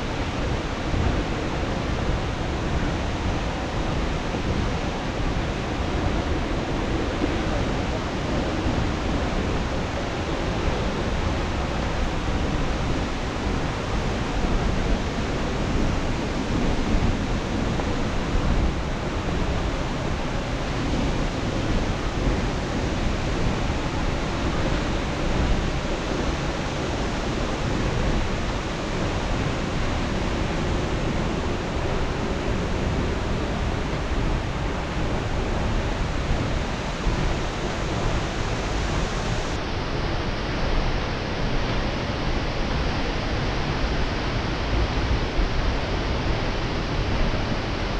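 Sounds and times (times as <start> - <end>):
waterfall rushing: 9.5 - 39.6.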